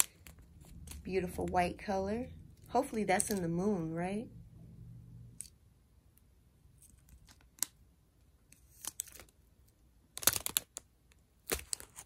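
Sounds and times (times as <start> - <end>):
plastic packaging crinkling: 0.0 - 1.1, 8.5 - 9.5, 10.1 - 12.0.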